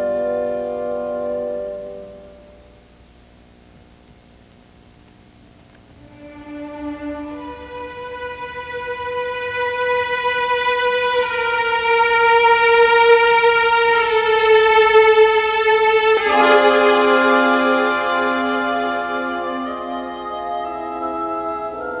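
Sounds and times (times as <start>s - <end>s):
film score music with violin: 6.0s - 22.0s.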